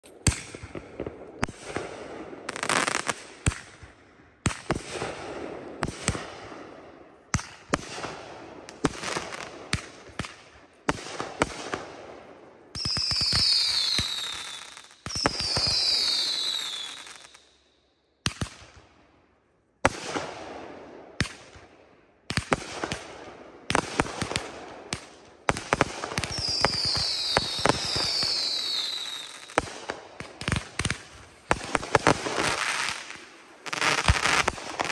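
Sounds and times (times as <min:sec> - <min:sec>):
falling firework whistles: 0:12.8 - 0:17.6, 0:26.2 - 0:29.8, 0:31.6 - 0:34.9
firework bangs: 0:23.7 - 0:34.9
firework crackle: 0:23.8 - 0:34.9.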